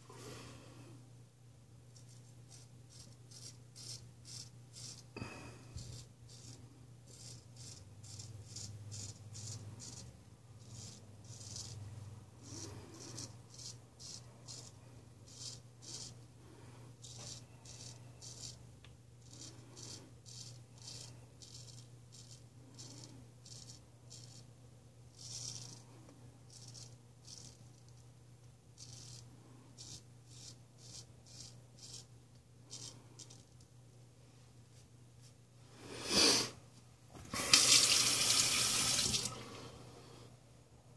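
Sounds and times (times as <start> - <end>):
straight razor scraping stubble: 2.0 - 5.2, 5.8 - 11.8.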